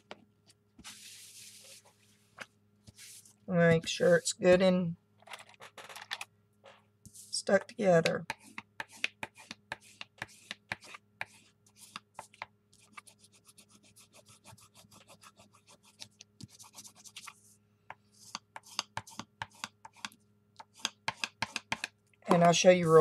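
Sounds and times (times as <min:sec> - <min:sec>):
hands smoothing paper pages: 0:00.8 - 0:03.4.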